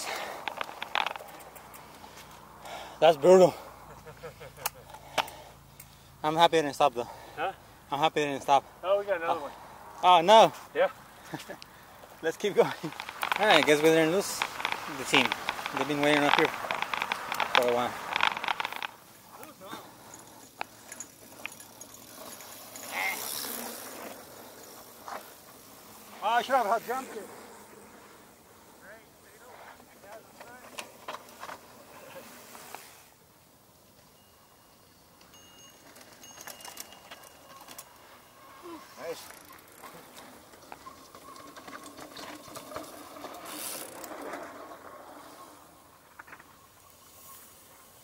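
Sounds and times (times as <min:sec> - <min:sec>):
mountain bike rolling on dirt: 0:00.0 - 0:48.0
sharp clicks and rattles: 0:00.3 - 0:02.0, 0:12.6 - 0:19.0.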